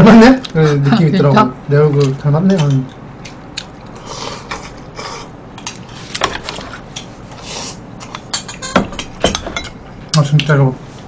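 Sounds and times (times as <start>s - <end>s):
chewing and mouth sounds: 2.9s - 5.9s.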